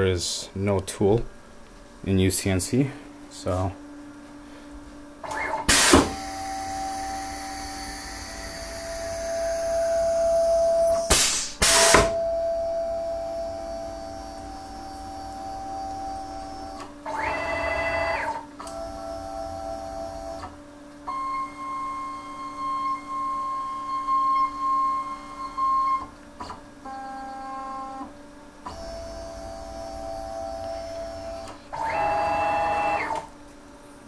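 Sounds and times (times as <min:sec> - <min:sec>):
stepper motors whining: 0:05.2 - 0:20.5.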